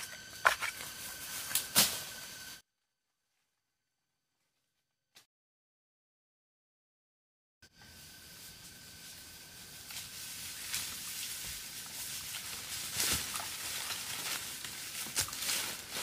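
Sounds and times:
steady hiss: 7.7 - 16.0
rustles and crackles: 7.8 - 16.0.

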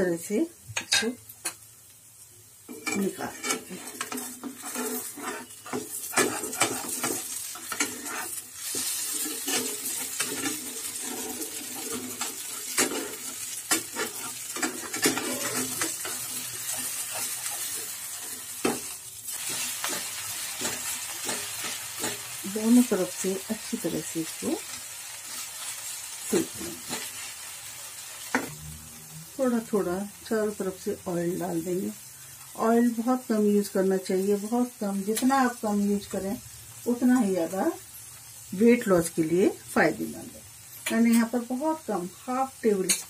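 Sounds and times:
pancake sizzling in frying pan: 0.0 - 43.0
spatula scraping and tapping pan: 2.7 - 22.5, 26.6 - 27.3, 42.8 - 43.0.

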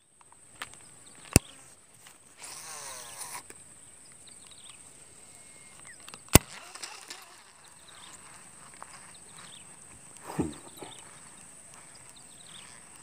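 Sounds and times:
reel whirring: 5.8 - 8.9
reel clicks: 6.0 - 8.3.

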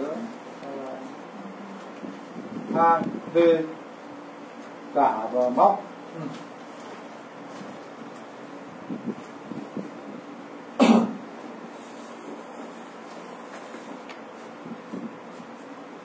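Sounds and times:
person coughing: 10.8 - 11.2.

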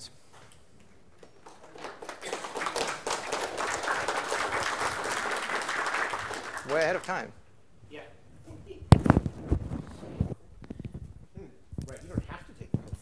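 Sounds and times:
audience applause: 1.4 - 7.3.

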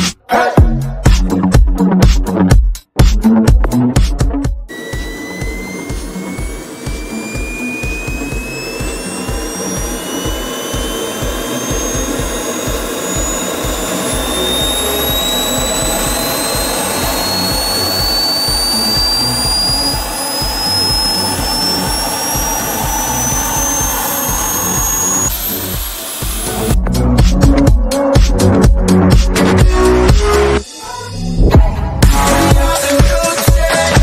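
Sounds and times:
jet turbine whine rising: 4.7 - 26.8
turbine rumble: 4.7 - 32.8.

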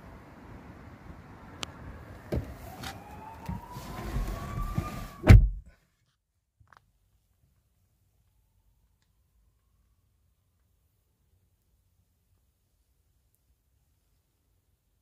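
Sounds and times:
heavy thump: 4.6 - 5.7.

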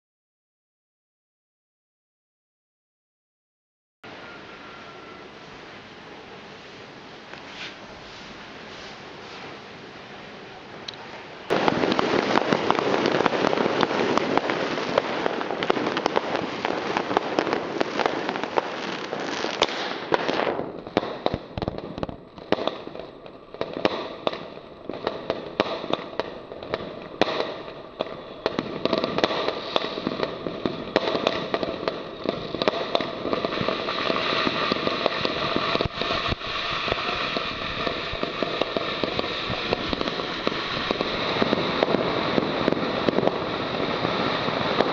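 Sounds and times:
fireworks rushing hiss: 4.1 - 44.9
fireworks shots popping: 11.5 - 44.9.

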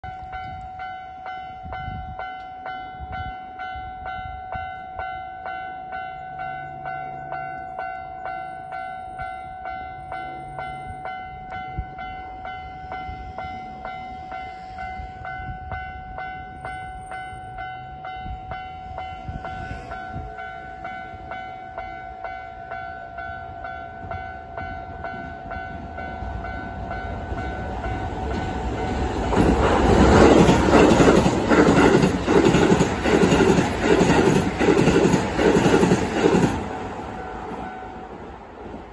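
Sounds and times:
train wheels clattering on rails: 25.1 - 38.9.

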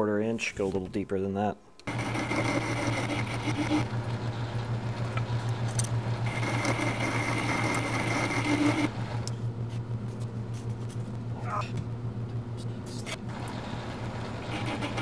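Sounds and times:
high cutting whine: 1.8 - 9.4
lathe motor hum: 1.8 - 10.0, 13.1 - 15.0.

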